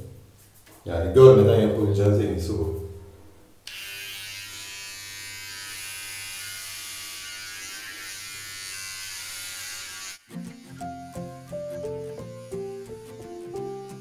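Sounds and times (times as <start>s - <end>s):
electric hair clipper buzzing: 3.6s - 14.0s.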